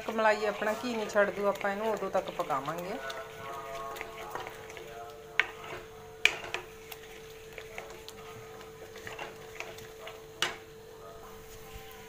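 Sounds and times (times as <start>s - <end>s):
spatula scraping a pan: 0.0s - 10.7s.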